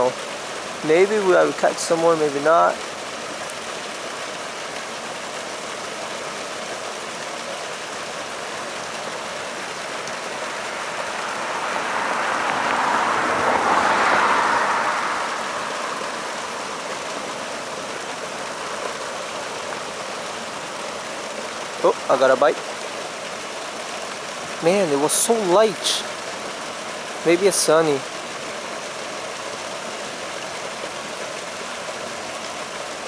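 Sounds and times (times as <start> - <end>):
steady background hiss: 0.0 - 33.0
vehicle passing: 9.8 - 19.1.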